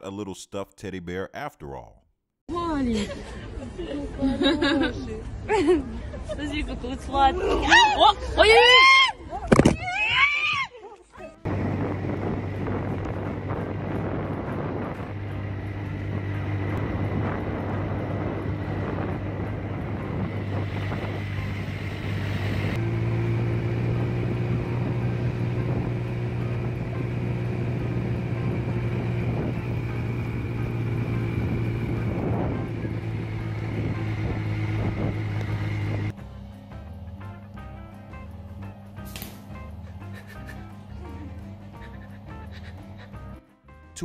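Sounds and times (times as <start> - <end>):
vehicle engine humming: 11.3 - 43.4
wind rushing over microphone: 11.5 - 22.9, 23.7 - 36.1.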